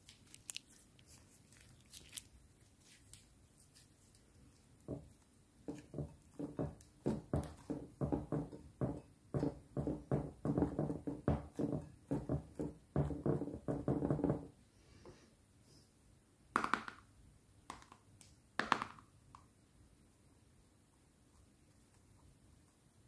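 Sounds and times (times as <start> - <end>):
sticky slime squelches: 0.0 - 7.8
plastic tub handling knocks: 5.7 - 14.5.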